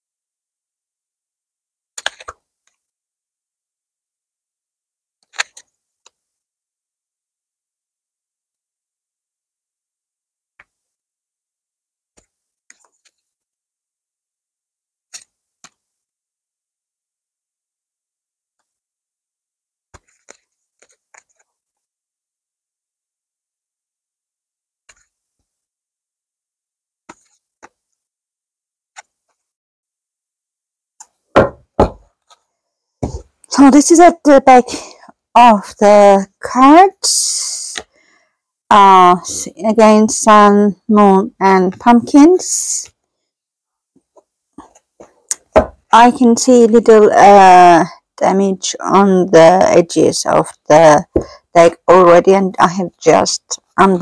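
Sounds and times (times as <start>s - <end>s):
cards clicking and tapping: 2.0s - 2.8s, 5.2s - 6.2s, 10.6s - 10.8s, 15.1s - 15.9s, 19.9s - 21.5s, 27.1s - 27.8s.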